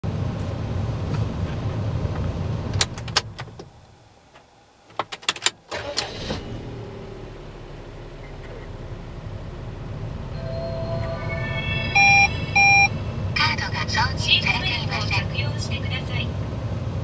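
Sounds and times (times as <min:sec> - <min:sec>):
engine cranking and starting: 0:05.3 - 0:11.2
car engine idling: 0:05.8 - 0:17.0.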